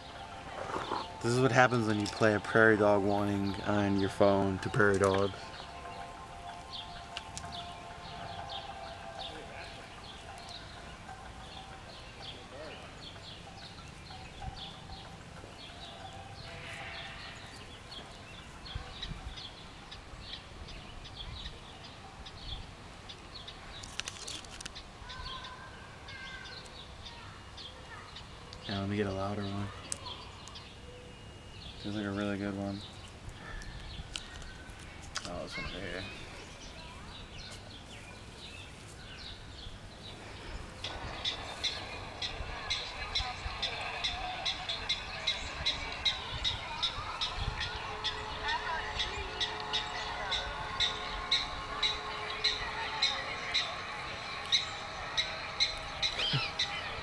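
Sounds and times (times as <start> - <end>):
prairie dog alarm chirps: 1.9 - 19.5, 40.8 - 57.0.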